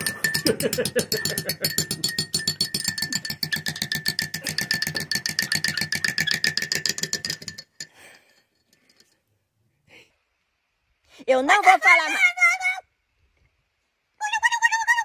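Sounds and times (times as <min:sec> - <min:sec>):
spoon clinking in ceramic mug: 0:00.0 - 0:09.1.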